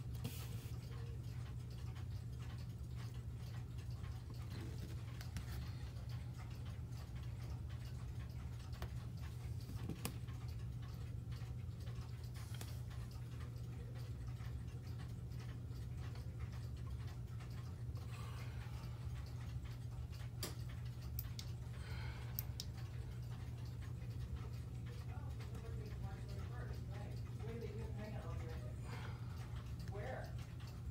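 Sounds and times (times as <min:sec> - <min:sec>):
pendulum clock ticking: 0:00.0 - 0:30.9
steady low hum: 0:00.0 - 0:30.9.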